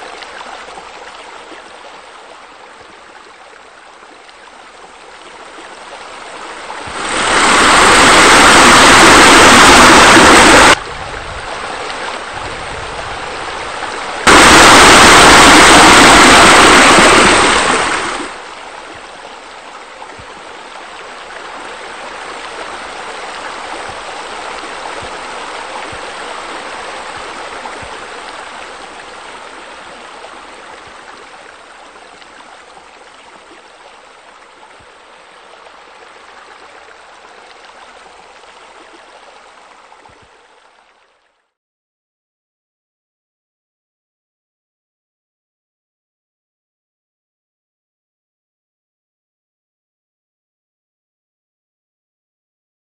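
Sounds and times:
fountain water rushing: 0:00.0 - 0:41.4.

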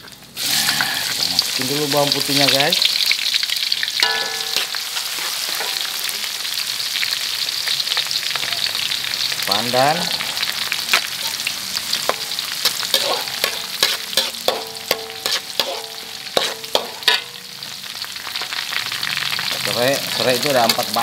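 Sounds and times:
garlic sizzling in hot oil: 0:00.0 - 0:21.0
metal spatula scraping wok: 0:00.4 - 0:01.3, 0:03.8 - 0:06.5, 0:10.8 - 0:17.5
wok ringing: 0:03.9 - 0:06.6, 0:07.7 - 0:08.8, 0:09.5 - 0:17.6.

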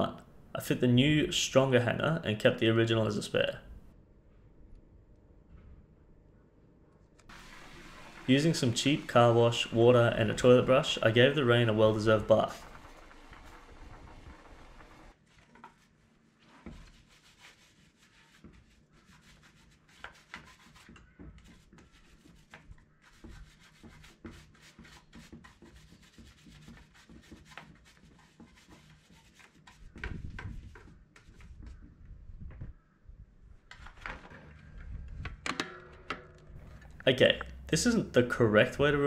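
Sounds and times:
scrubbing bike frame: 0:07.4 - 0:31.6.

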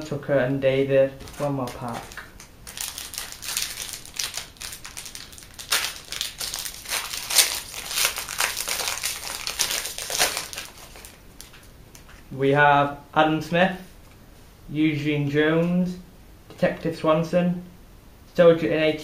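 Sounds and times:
plastic wrapper tearing and crinkling: 0:01.2 - 0:12.2.

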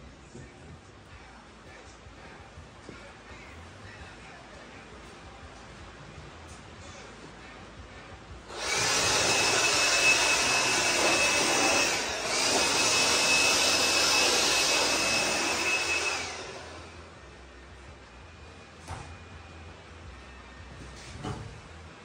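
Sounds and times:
battery blower whining: 0:08.5 - 0:17.1.

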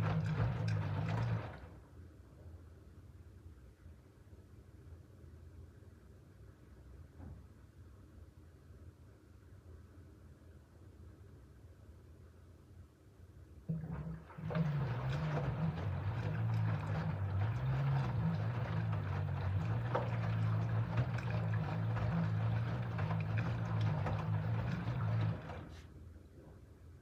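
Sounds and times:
water and laundry sloshing: 0:00.0 - 0:01.8, 0:13.7 - 0:26.0
washing machine motor hum: 0:00.0 - 0:02.0, 0:13.6 - 0:26.5.

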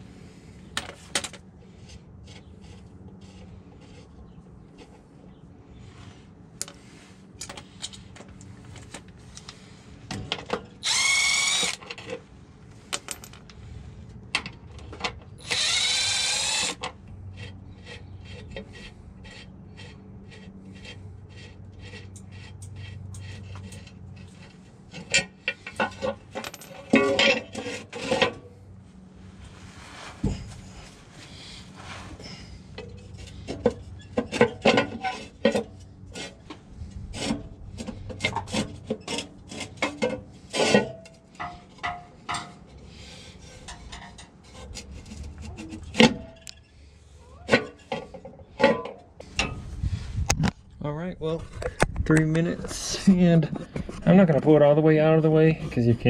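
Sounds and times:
cordless power tool whirring: 0:10.8 - 0:11.8, 0:15.4 - 0:16.8.

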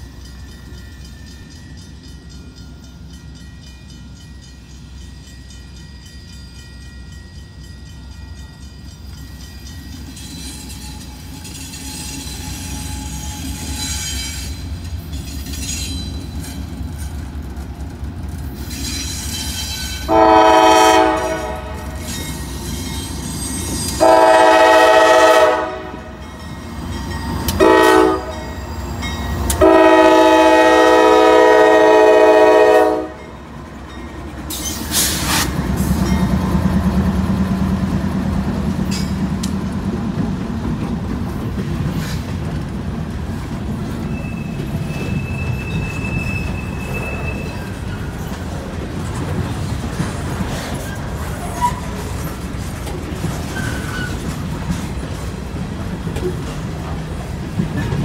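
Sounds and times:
diesel engines and wheels: 0:00.0 - 0:58.0
train rumble: 0:00.0 - 0:58.0
locomotive air horn blasts: 0:20.1 - 0:22.0, 0:24.0 - 0:26.1, 0:27.6 - 0:28.5, 0:29.6 - 0:33.2.

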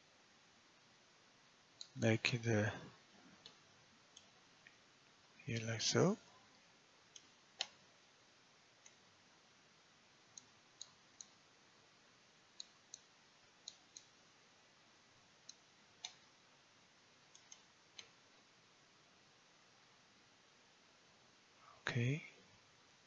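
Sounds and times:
computer mouse clicking: 0:07.1 - 0:07.8, 0:12.6 - 0:14.2, 0:15.4 - 0:16.3, 0:17.3 - 0:18.2.

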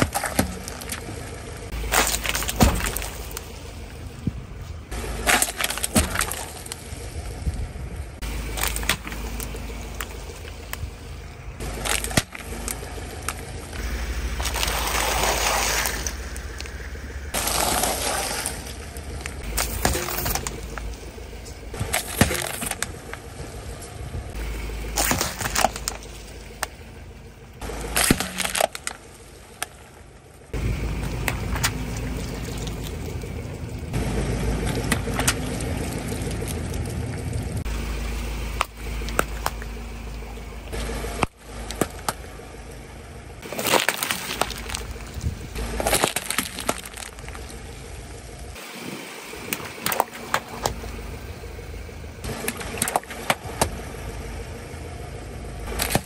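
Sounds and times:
plastic bottles crushed cracking: 0:00.0 - 0:03.5, 0:05.2 - 0:06.8, 0:08.4 - 0:10.8, 0:11.6 - 0:16.6, 0:17.4 - 0:21.0, 0:21.8 - 0:23.2, 0:24.8 - 0:26.8, 0:27.7 - 0:29.9, 0:43.4 - 0:47.6, 0:52.3 - 0:53.8, 0:55.7 - 0:56.0
engine and tyres rumbling: 0:00.0 - 0:56.0.

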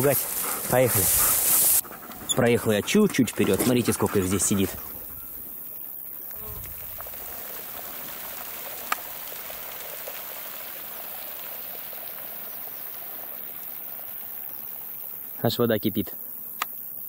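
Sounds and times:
outdoor background hiss: 0:00.0 - 0:17.0
sharp click: 0:16.6 - 0:16.8.

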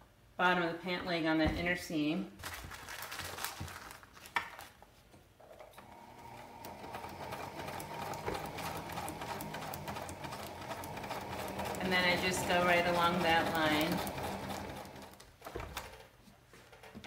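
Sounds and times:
sewing machine stitching: 0:05.8 - 0:16.1.

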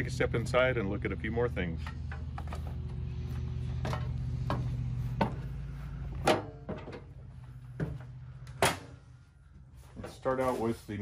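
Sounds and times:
steady low hum: 0:00.0 - 0:11.0
footsteps up steps: 0:02.1 - 0:08.7.

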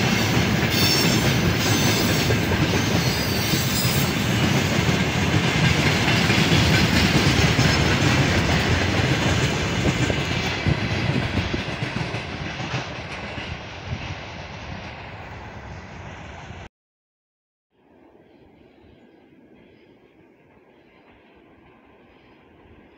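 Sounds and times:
train wheels clattering over rail joints: 0:00.0 - 0:13.6
train rumble: 0:00.0 - 0:16.7, 0:19.2 - 0:22.9.

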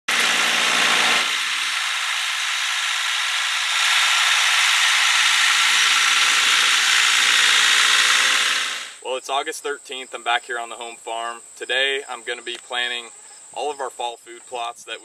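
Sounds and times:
tractor pulling rotary tiller: 0:00.1 - 0:09.0.

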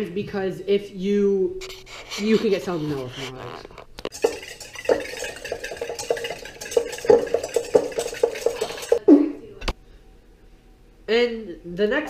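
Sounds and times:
whisk clinking in metal bowl: 0:04.1 - 0:09.0.

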